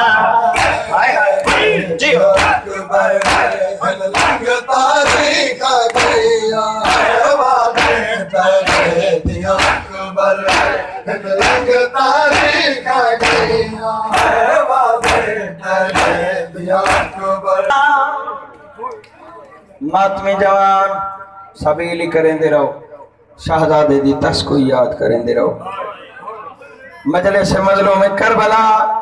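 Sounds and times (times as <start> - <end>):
men striking their chests: 0.0 - 17.4
men chanting in chorus: 0.0 - 18.5.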